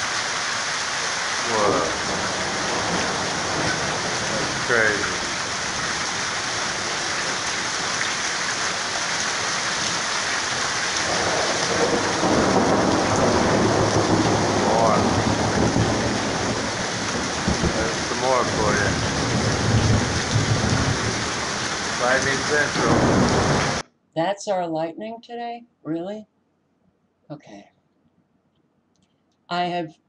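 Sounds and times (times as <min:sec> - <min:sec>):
heavy rain falling: 0:00.0 - 0:23.8
low rumble of thunder: 0:01.4 - 0:23.8.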